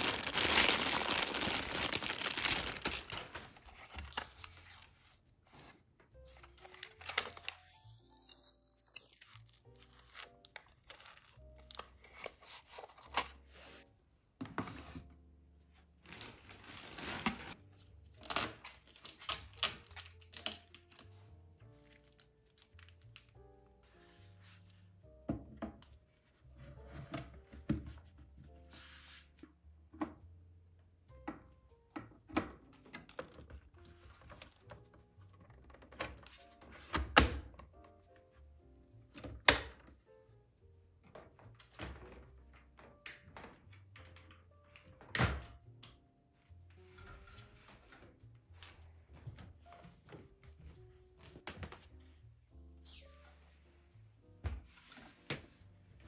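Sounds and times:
plastic packaging crinkling: 0.0 - 4.9, 16.0 - 17.6
soft background music: 0.0 - 56.0.

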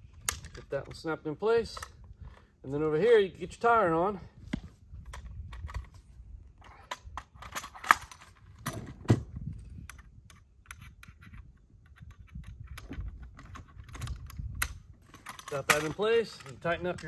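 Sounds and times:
metal hardware clicks and clinks: 15.1 - 17.0.

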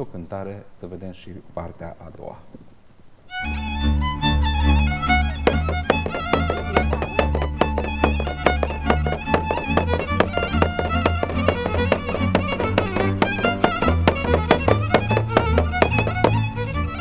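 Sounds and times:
fiddle playing lively tune: 3.3 - 17.0
drum beat: 5.4 - 16.5.

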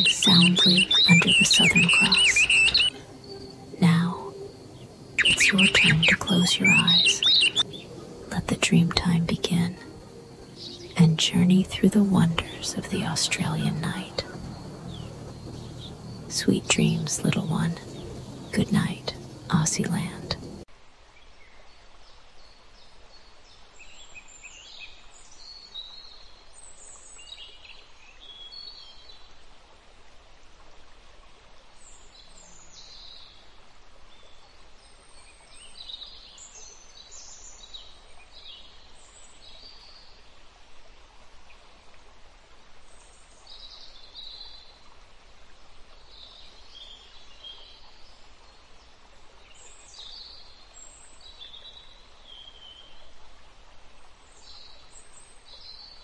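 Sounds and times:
birds chirping: 0.0 - 20.6
steady soft hiss: 0.0 - 56.0.

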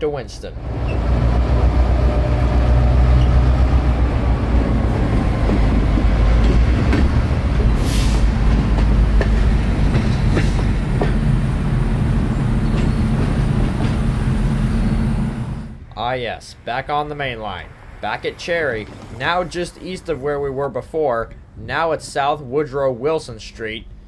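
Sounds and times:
train wheels rumbling over rails: 0.6 - 15.9, 17.9 - 21.4.

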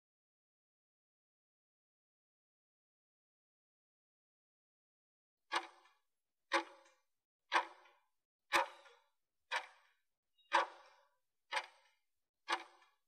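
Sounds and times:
timer ticking: 10.5 - 11.9, 12.5 - 12.9.

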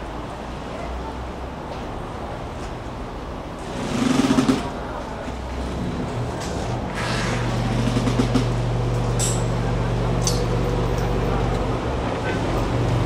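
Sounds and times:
ferry engine droning: 3.1 - 13.0
brief hissing: 6.9 - 7.5.

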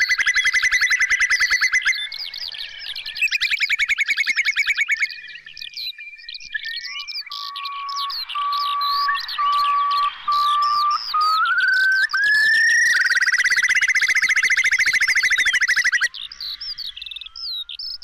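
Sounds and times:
whimbrel rippling trill: 0.0 - 2.2, 3.2 - 5.2, 6.8 - 16.2
higher bird chirps: 0.0 - 18.0
long level whistles: 6.7 - 16.1.

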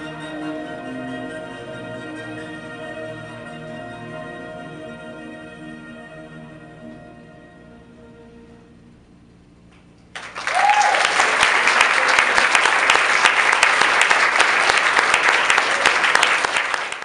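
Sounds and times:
audience applauding: 10.1 - 17.0.

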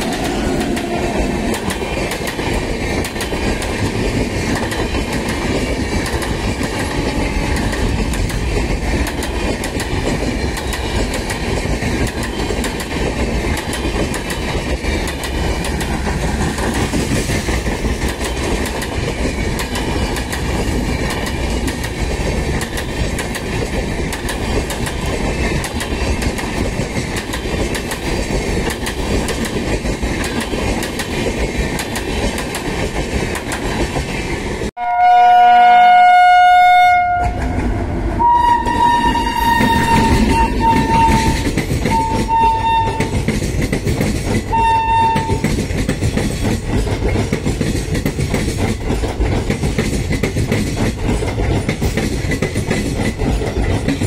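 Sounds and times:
train coaches rumbling past: 0.0 - 54.0.

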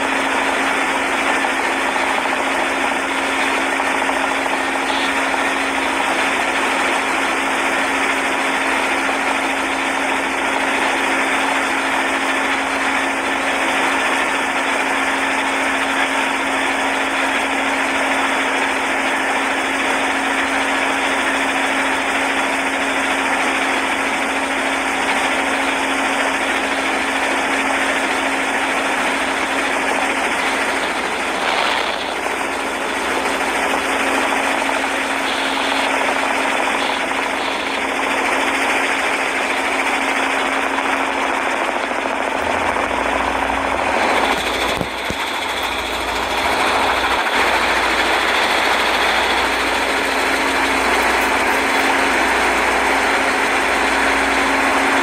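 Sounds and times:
motorboat engine running: 0.0 - 55.0.

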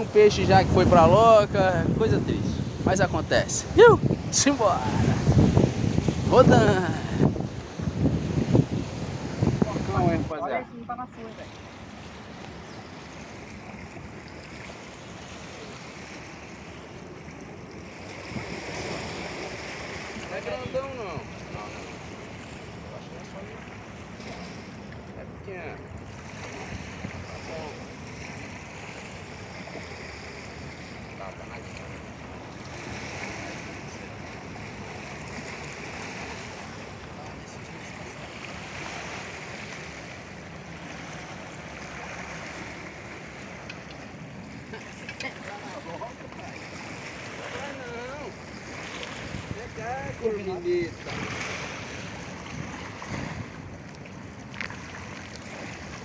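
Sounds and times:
sea on rocky shore: 0.0 - 56.0
wind: 0.0 - 56.0
small waves washing on rocks: 31.2 - 56.0.

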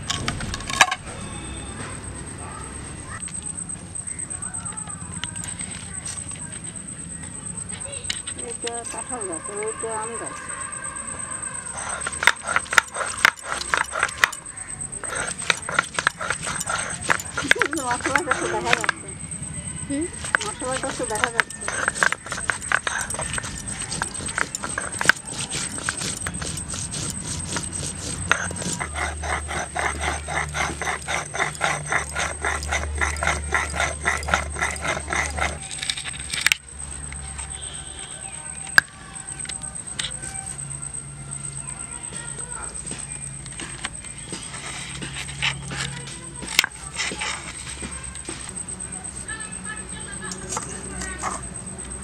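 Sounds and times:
stone roller grinding on stone: 11.6 - 19.2, 19.9 - 37.3, 42.1 - 48.6.

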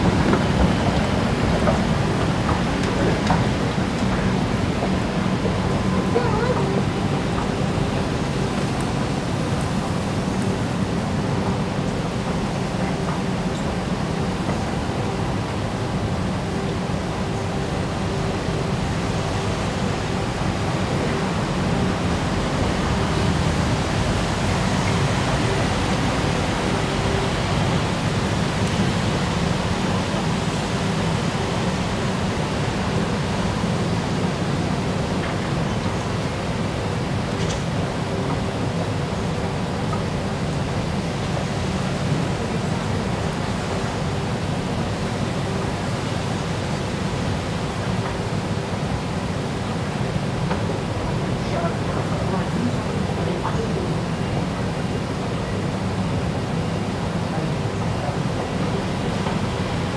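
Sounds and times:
train platform rushing ambience: 0.0 - 59.9.

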